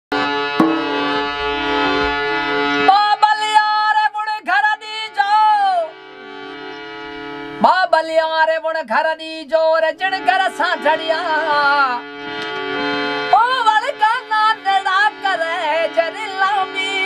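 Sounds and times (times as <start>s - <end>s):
instrumental drone: 0.1s - 3.7s, 5.9s - 7.7s.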